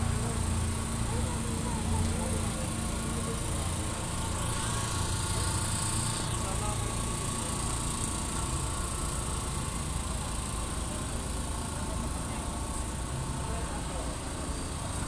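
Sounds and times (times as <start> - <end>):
truck engine rumbling: 0.0 - 15.0
high-pitched insect buzz: 4.4 - 7.6.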